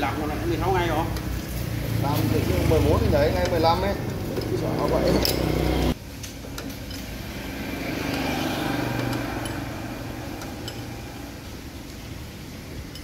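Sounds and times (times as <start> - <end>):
passing vehicle engine hum: 1.5 - 6.0, 7.1 - 11.9
wrench clicks: 9.0 - 11.0.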